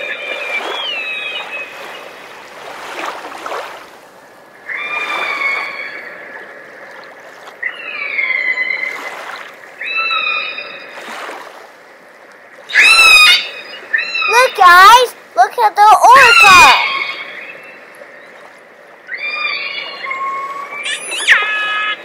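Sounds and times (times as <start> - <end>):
water sloshing: 0.0 - 9.8, 10.8 - 12.8, 13.4 - 22.0
orca whistle-like calls: 12.7 - 14.9, 16.1 - 17.8, 19.1 - 22.0.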